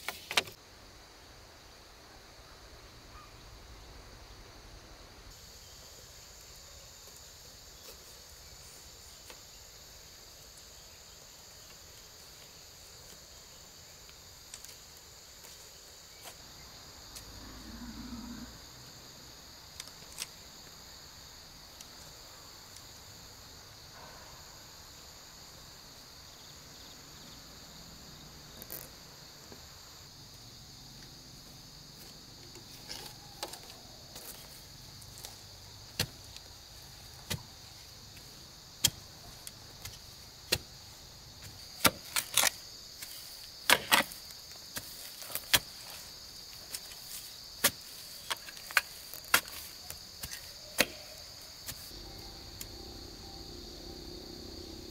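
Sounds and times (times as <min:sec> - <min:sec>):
high-pitched insect drone: 0:50.5 - 0:54.9.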